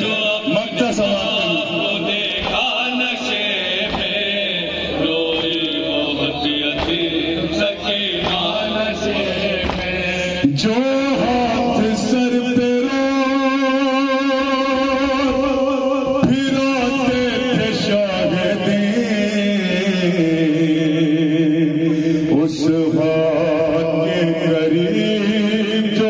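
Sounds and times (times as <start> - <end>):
voices chanting a lament: 0.0 - 26.0.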